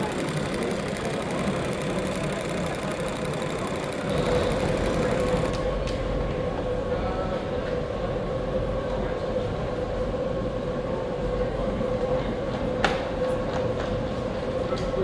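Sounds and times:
model machinery humming and whining: 0.0 - 5.8.

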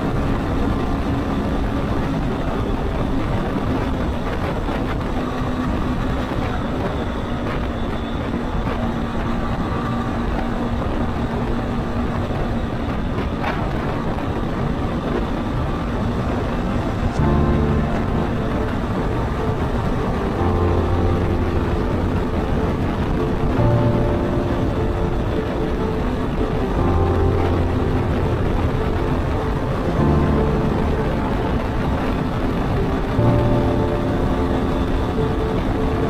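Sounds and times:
motorcycle engine cruising: 0.0 - 36.0
wind noise: 0.0 - 36.0.

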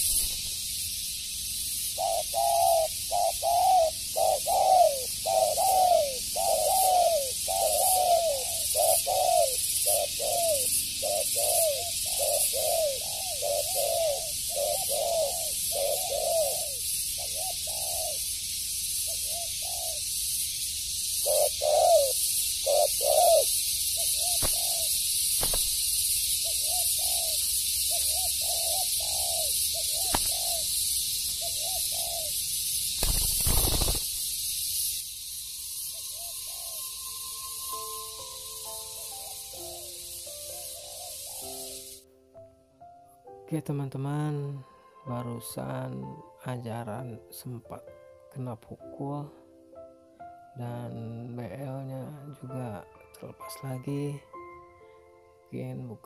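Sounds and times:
steady high hiss: 0.0 - 56.0
dove cooing: 1.9 - 18.3, 19.1 - 20.1, 21.2 - 25.6, 26.4 - 32.4, 36.0 - 37.0, 38.9 - 42.0.

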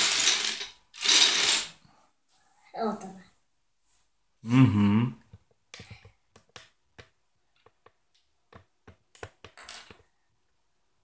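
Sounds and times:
plastic bricks clicking and clattering: 0.0 - 1.7.

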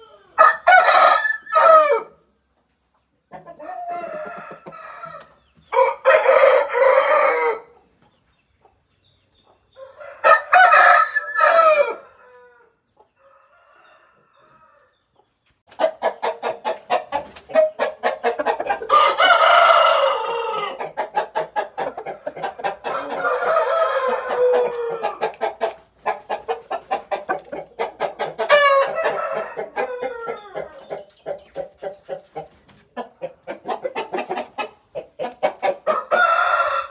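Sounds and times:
chicken clucking: 0.0 - 36.9
rooster crowing: 0.4 - 2.2, 3.6 - 7.7, 9.8 - 15.0, 18.9 - 20.9, 21.8 - 25.4, 28.4 - 30.7, 35.8 - 36.9.

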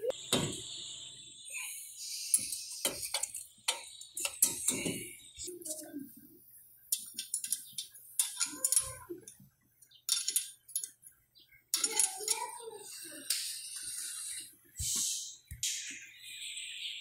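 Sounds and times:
wrench clinking against metal: 10.1 - 11.0.

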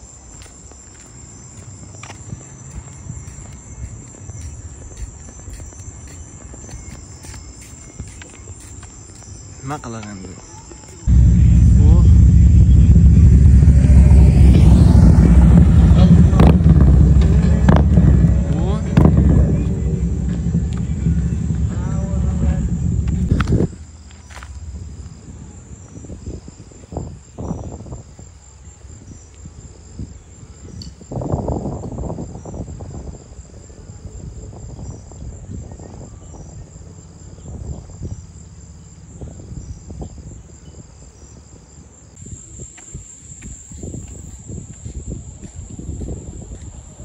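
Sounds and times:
insects trilling: 0.0 - 11.1, 20.1 - 46.4
scattered thumps: 11.1 - 23.7
low rumble: 11.1 - 25.5.

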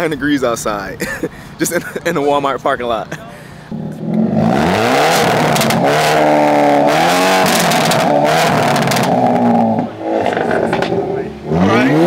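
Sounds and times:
exhaust crackles and pops: 3.7 - 11.3
car engine revving hard: 3.7 - 12.0.

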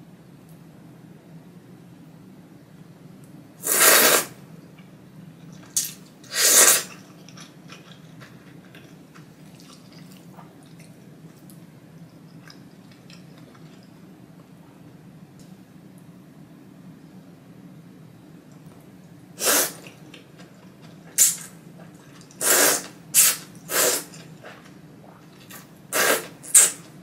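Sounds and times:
loud noodle slurps: 3.6 - 4.4, 6.3 - 7.0, 19.4 - 19.9, 22.4 - 24.2, 25.9 - 26.8
faint chewing clicks: 6.9 - 14.5.

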